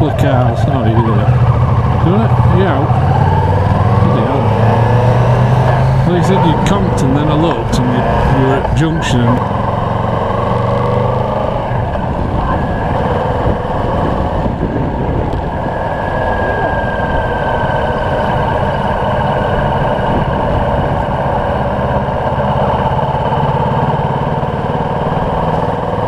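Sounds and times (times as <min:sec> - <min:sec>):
motorcycle engine running: 0:00.0 - 0:26.0
wind rushing over microphone: 0:00.0 - 0:26.0.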